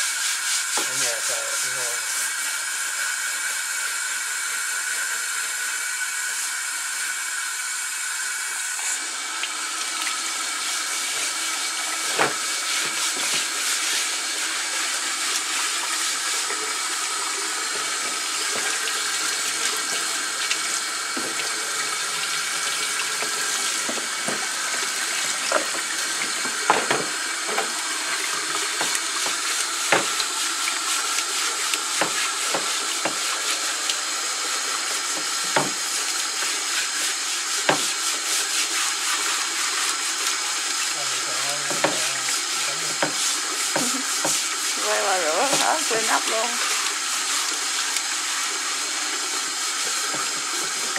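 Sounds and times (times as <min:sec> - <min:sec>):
faucet water running into sink: 0:00.0 - 0:50.9
water splashing off cutting board: 0:11.0 - 0:14.1, 0:15.3 - 0:34.0, 0:35.0 - 0:36.8, 0:37.6 - 0:38.1, 0:41.4 - 0:47.0.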